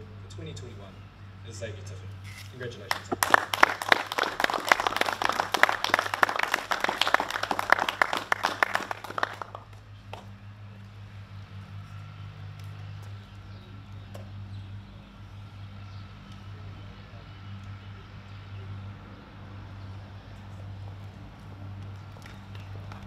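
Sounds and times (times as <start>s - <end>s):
people clapping: 2.9s - 10.3s, 21.8s - 23.0s.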